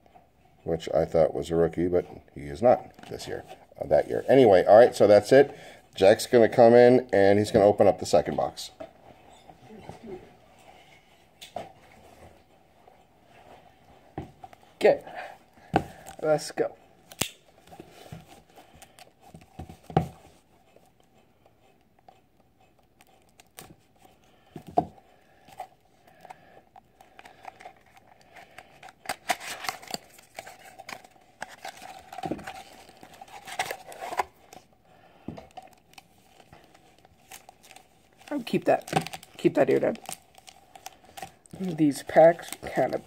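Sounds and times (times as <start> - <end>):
plastic wrapping crinkling and tearing: 27.0 - 34.7, 35.4 - 43.0.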